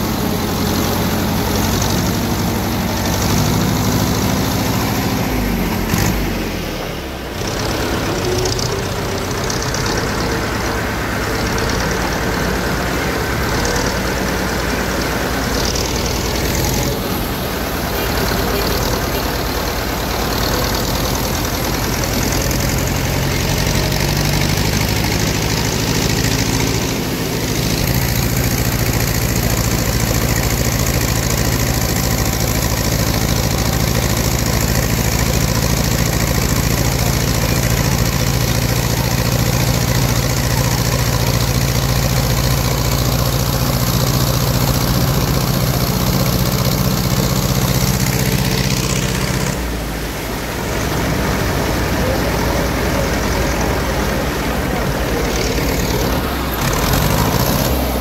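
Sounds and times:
tractor engine running: 0:00.0 - 0:58.0
water rushing and splashing: 0:00.0 - 0:58.0.

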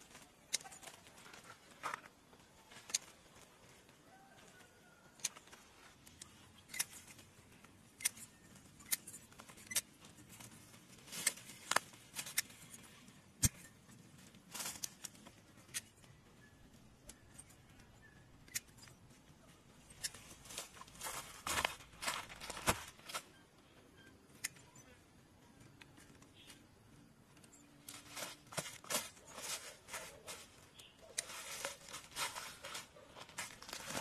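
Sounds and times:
leaves rustling: 0:27.8 - 0:34.0
footsteps on dry leaf litter: 0:28.0 - 0:34.0.

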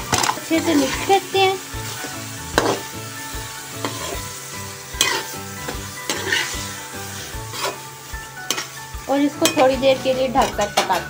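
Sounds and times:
light sizzle: 0:00.0 - 0:11.0
spoon scraping metal pot: 0:02.0 - 0:02.9, 0:03.8 - 0:04.3, 0:04.9 - 0:08.7, 0:09.4 - 0:11.0.

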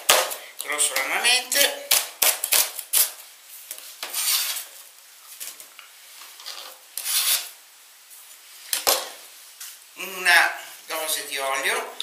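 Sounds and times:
knife scraping on cutting board: 0:04.0 - 0:04.7, 0:06.4 - 0:07.6.

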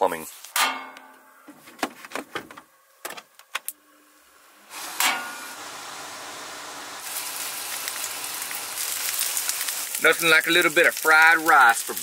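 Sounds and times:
steady rushing hiss: 0:04.6 - 0:12.0.

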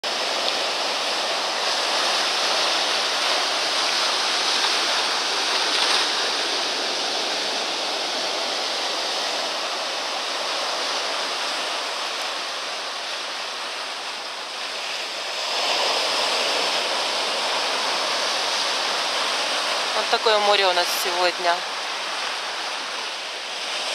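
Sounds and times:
sea surf breaking on rocks: 0:00.0 - 0:23.9.

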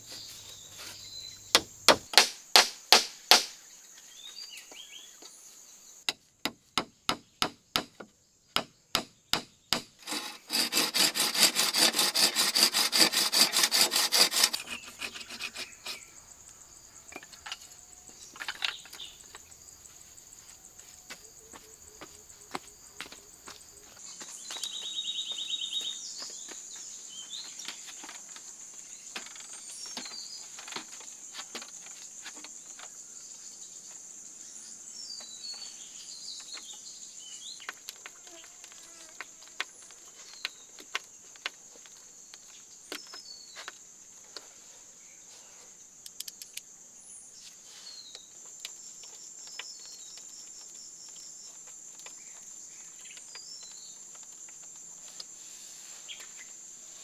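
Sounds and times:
insects droning: 0:00.0 - 0:57.0
bird chirps: 0:24.2 - 0:27.6.

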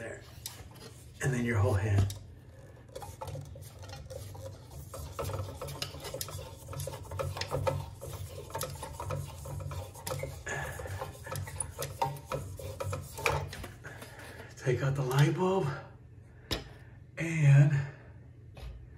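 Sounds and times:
hand rubbing and scraping: 0:00.0 - 0:15.4.

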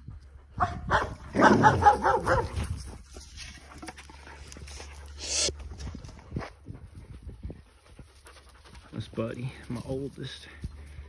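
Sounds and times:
dogs barking: 0:00.6 - 0:02.8.

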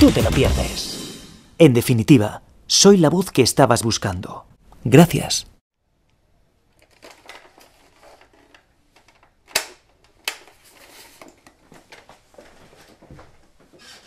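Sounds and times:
plastic clicks: 0:06.0 - 0:10.6
rustling: 0:06.7 - 0:14.0.

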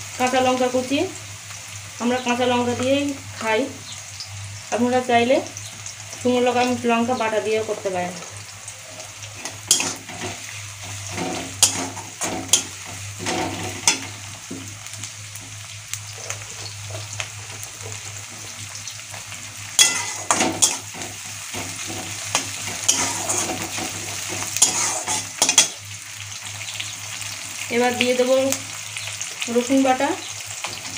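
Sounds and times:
onions sizzling in oil: 0:00.0 - 0:30.9
metal spatula scraping pan: 0:09.2 - 0:14.2, 0:19.8 - 0:25.8.

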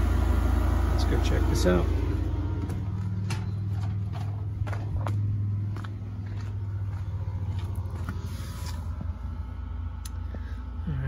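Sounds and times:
air conditioner humming: 0:00.0 - 0:11.0
footsteps: 0:02.5 - 0:09.3.

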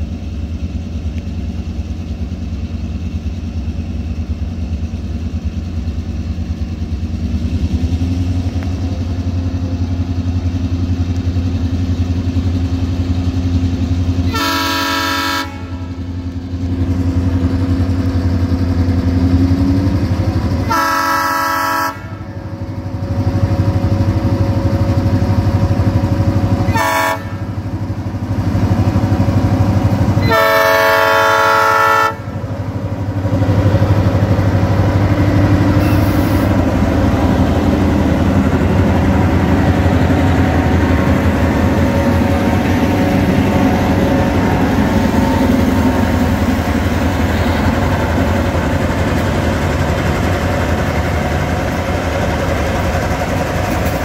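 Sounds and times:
diesel engine rumbling: 0:00.0 - 0:54.0
locomotive air horn blasts: 0:14.2 - 0:16.0, 0:20.6 - 0:22.4, 0:26.7 - 0:27.6, 0:30.2 - 0:32.4, 0:35.8 - 0:36.5.

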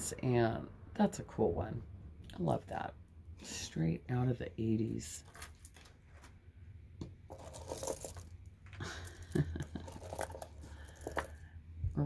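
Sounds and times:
rustling: 0:05.2 - 0:06.4, 0:07.3 - 0:09.2
bead necklaces clinking: 0:07.3 - 0:08.5, 0:09.1 - 0:11.4.

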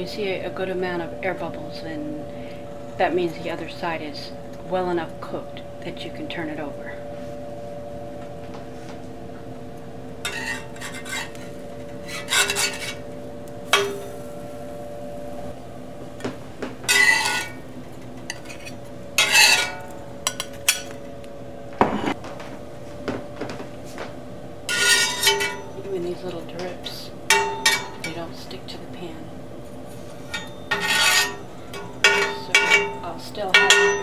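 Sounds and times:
steady hum: 0:00.0 - 0:34.0
metal spatula scraping griddle: 0:10.2 - 0:14.2, 0:16.9 - 0:17.6, 0:18.2 - 0:20.9, 0:24.7 - 0:25.8, 0:29.9 - 0:34.0.

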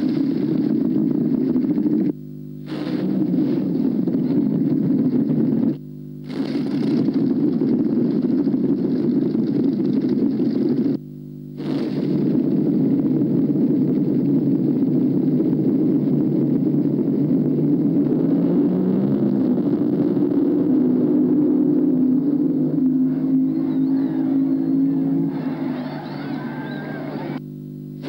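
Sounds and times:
low hum: 0:00.0 - 0:28.0
vehicle engines rumbling: 0:12.9 - 0:27.4.

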